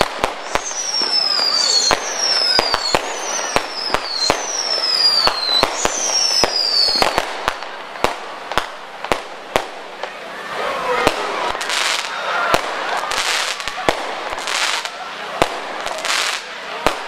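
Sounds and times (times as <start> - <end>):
falling firework whistles: 0.0 - 7.6
fireworks bangs: 0.0 - 17.0.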